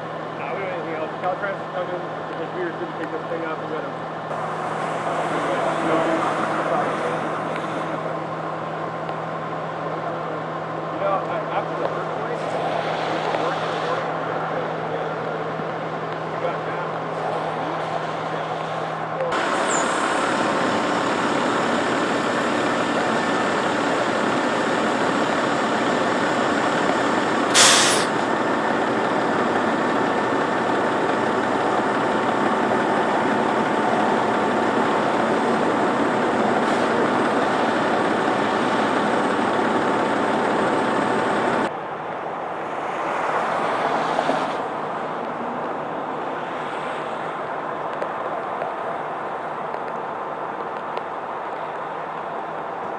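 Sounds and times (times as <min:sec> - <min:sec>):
diesel engine running: 0:00.0 - 0:42.0
air brake hiss: 0:27.5 - 0:28.2.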